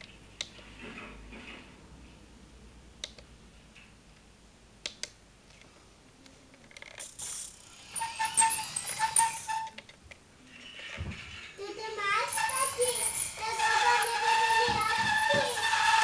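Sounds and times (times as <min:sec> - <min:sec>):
toy truck motor whirring: 0:06.8 - 0:09.8, 0:10.4 - 0:16.0.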